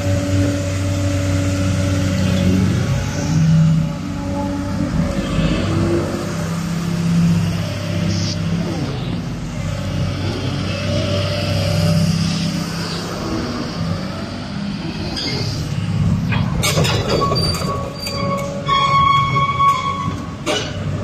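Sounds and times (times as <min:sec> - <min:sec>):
excavator diesel engine humming: 0:00.0 - 0:21.0
steel tracks clattering and squealing: 0:14.9 - 0:21.0.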